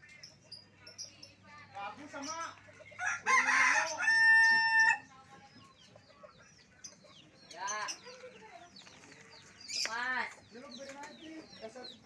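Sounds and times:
small birds chirping: 0:00.0 - 0:12.0
rooster crowing: 0:03.0 - 0:05.0.

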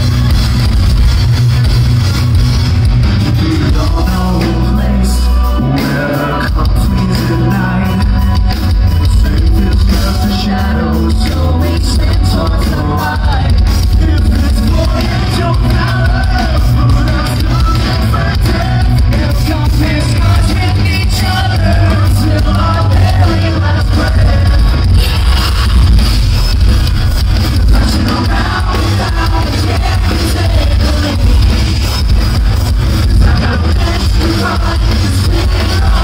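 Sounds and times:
metal band playing live: 0:00.0 - 0:36.0
person singing: 0:03.2 - 0:26.0, 0:27.6 - 0:36.0.

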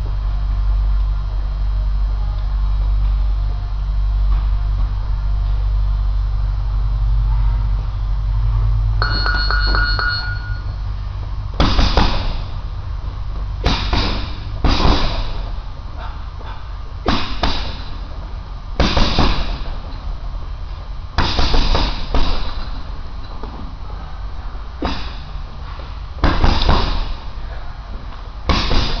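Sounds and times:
ringing dings: 0:09.0 - 0:10.9
punches thudding on heavy bag: 0:11.6 - 0:12.5, 0:13.6 - 0:15.5, 0:17.1 - 0:17.9, 0:18.8 - 0:19.8, 0:21.2 - 0:22.7, 0:26.2 - 0:27.3, 0:28.5 - 0:29.0.

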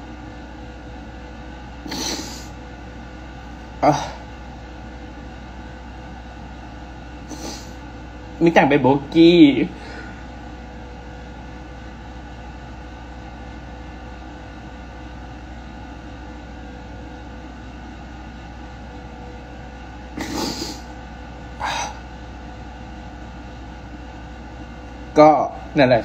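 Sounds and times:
steady room hum: 0:00.0 - 0:26.0
woman sobbing sniffs: 0:01.9 - 0:02.6, 0:07.3 - 0:07.8, 0:20.2 - 0:20.9.

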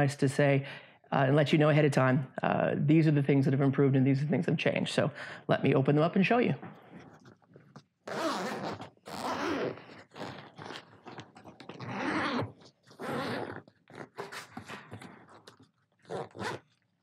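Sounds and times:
zipper being pulled open: 0:07.0 - 0:16.8.

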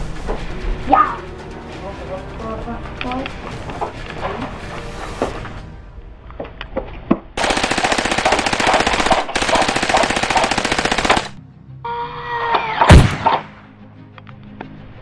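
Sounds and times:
machine-gun fire: 0:07.4 - 0:11.4.

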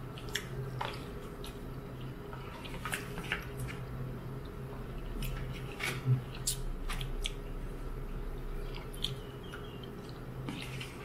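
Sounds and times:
steady low hum: 0:00.0 - 0:11.0
wet chewing and mouth smacks: 0:00.1 - 0:03.8, 0:08.6 - 0:11.0.

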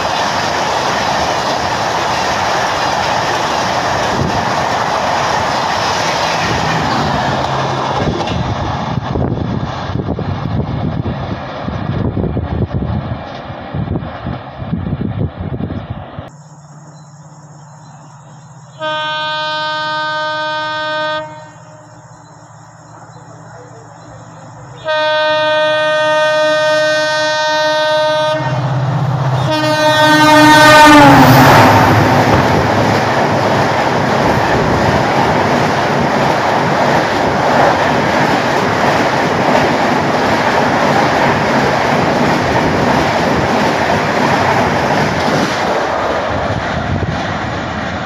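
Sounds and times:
train coaches rushing and rattling: 0:00.0 - 0:16.1, 0:21.6 - 0:48.0
train horn blasts: 0:18.7 - 0:21.9, 0:24.8 - 0:31.4.

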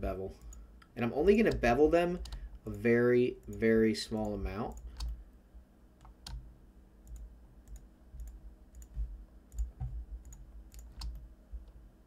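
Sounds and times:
computer mouse clicking: 0:00.4 - 0:05.2, 0:06.0 - 0:11.8
faint low thumps: 0:08.2 - 0:10.4.

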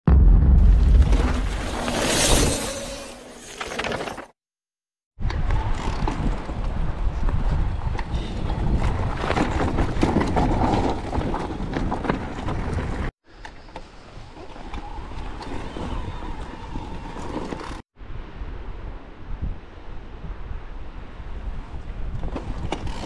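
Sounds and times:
wind buffeting microphone: 0:05.2 - 0:13.1
bike knocks and rattles: 0:08.6 - 0:13.1.

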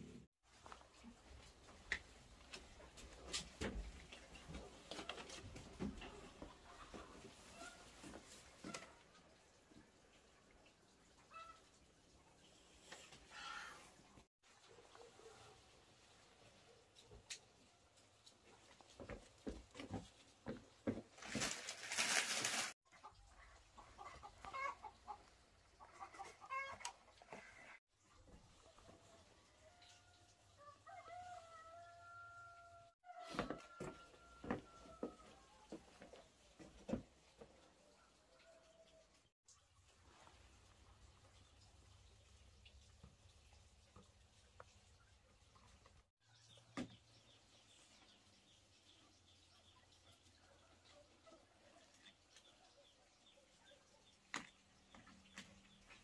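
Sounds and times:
chickens clucking: 0:22.9 - 0:27.8.

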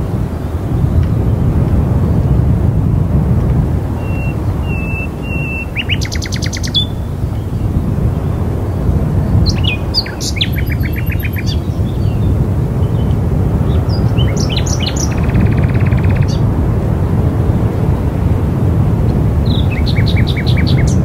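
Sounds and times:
low wind noise: 0:00.0 - 0:21.0
bird trill: 0:04.0 - 0:07.1, 0:09.4 - 0:12.3, 0:13.8 - 0:16.4, 0:19.5 - 0:21.0
small birds chirping: 0:04.0 - 0:08.6, 0:09.2 - 0:16.4, 0:19.5 - 0:21.0.

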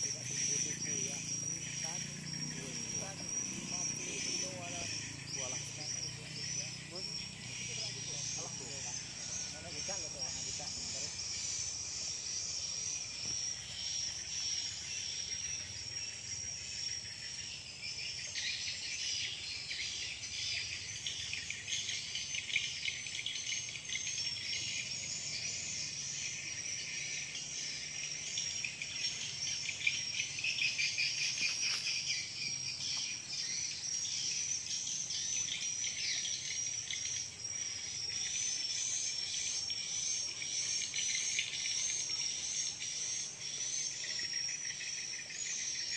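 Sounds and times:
insects trilling: 0:00.0 - 0:45.9
rapidly pulsing insect chorus: 0:00.0 - 0:45.9.

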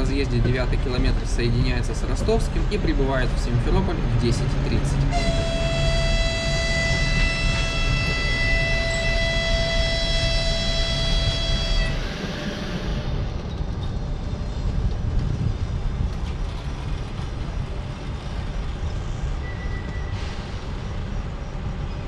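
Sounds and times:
train wheels rumbling on rails: 0:00.0 - 0:22.0
high squeal: 0:05.2 - 0:13.2, 0:19.4 - 0:21.1.

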